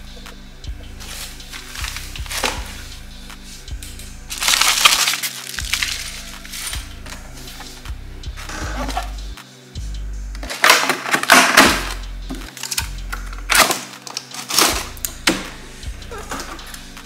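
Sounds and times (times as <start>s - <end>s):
background music with bass: 0.0s - 17.0s
plastic wrap crinkling: 4.3s - 6.8s.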